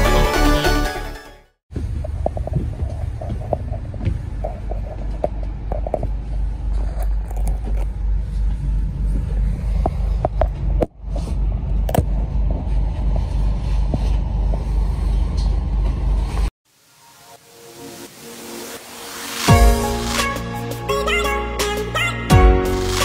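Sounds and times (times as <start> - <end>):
bus engine rumble: 1.7 - 16.4.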